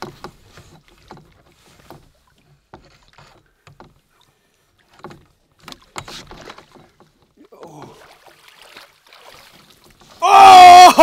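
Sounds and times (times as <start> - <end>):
water splashes: 4.0 - 11.0.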